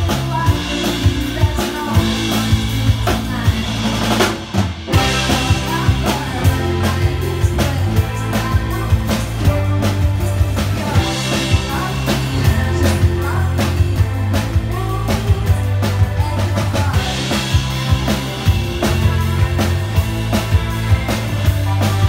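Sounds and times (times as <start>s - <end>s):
woman singing: 0.0s - 4.4s, 5.0s - 22.0s
drum kit: 0.0s - 22.0s
electric bass: 0.0s - 22.0s.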